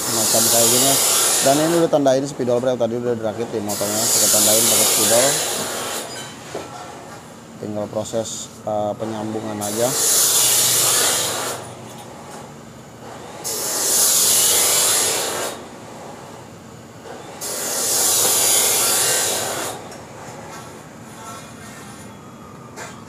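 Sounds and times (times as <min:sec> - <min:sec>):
tool rasping on steel pipe: 0:00.0 - 0:02.0, 0:03.6 - 0:06.3, 0:09.1 - 0:11.8, 0:13.0 - 0:15.6, 0:17.4 - 0:19.9.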